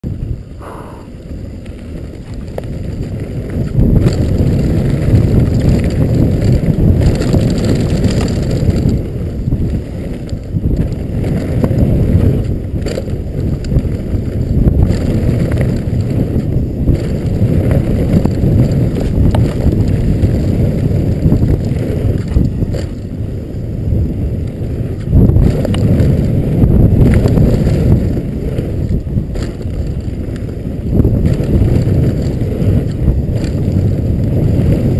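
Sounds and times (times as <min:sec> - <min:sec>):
wind on microphone: 0:00.0 - 0:34.9.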